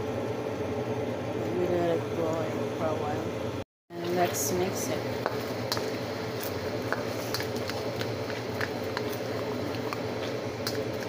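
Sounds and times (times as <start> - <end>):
steady hum: 0.0 - 11.0
sauce simmering: 4.0 - 11.0
spatula stirring in pan: 4.0 - 11.0.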